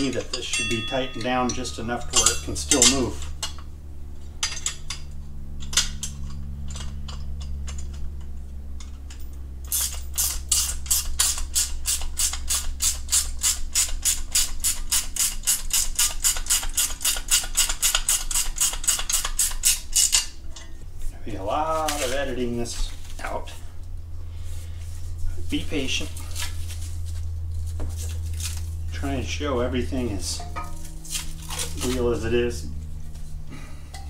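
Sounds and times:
steady low hum: 0.0 - 34.0
small metal parts clicking: 4.4 - 20.7.

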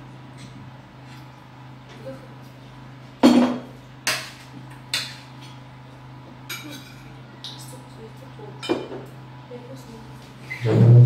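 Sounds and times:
steady low hum: 0.0 - 11.0
tableware clinking: 3.2 - 5.2.

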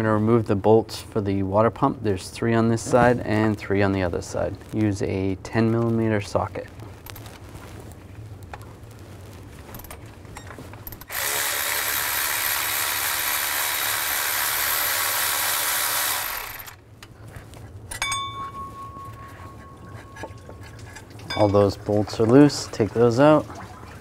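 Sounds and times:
electric ratchet running: 10.9 - 16.8.

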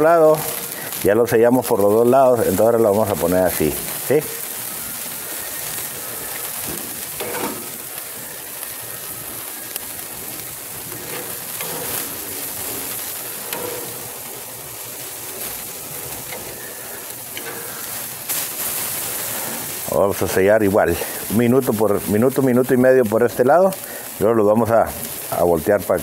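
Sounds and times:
steaks sizzling on grill: 0.0 - 26.0
metal tongs clicking on grate: 7.2 - 7.6, 11.0 - 12.2, 13.5 - 14.0.

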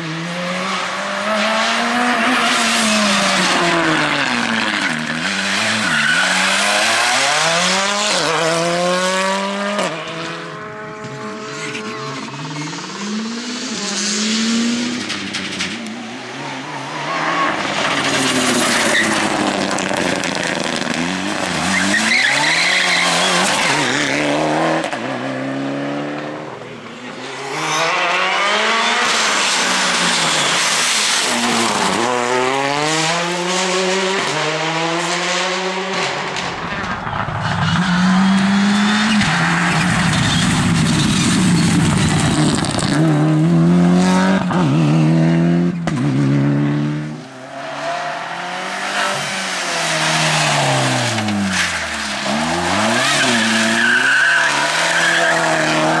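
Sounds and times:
rally car engines revving: 0.0 - 56.0
tyre squeal: 3.9 - 7.3, 21.2 - 23.8, 37.4 - 41.9, 50.3 - 56.0.

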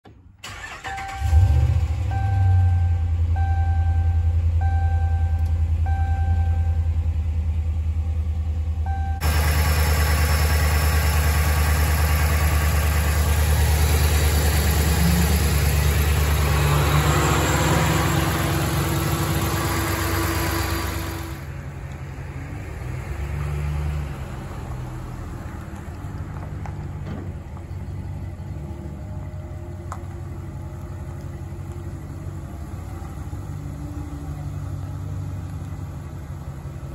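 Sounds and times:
truck engine idling: 0.1 - 22.4, 25.1 - 36.9
dashboard warning chime beeping: 2.1 - 6.9, 8.8 - 9.3.

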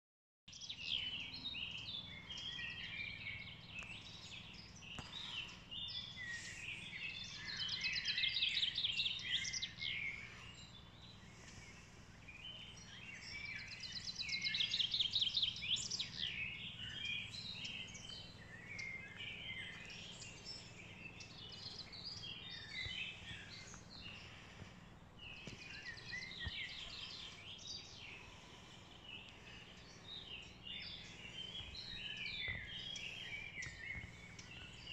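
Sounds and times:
songbirds singing: 0.5 - 34.9.

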